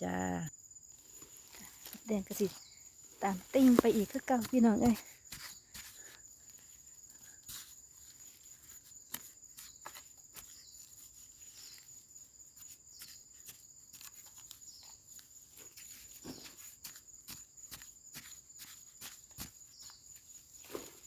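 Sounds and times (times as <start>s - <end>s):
high insect drone: 0.0s - 21.0s
digging scraping in dry soil: 0.9s - 21.0s.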